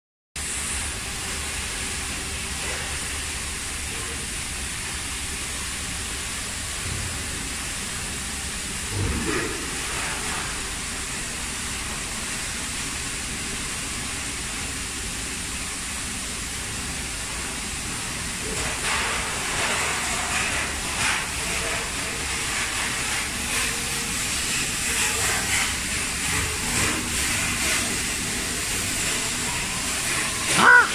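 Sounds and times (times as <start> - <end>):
factory background hiss: 0.4 - 30.9.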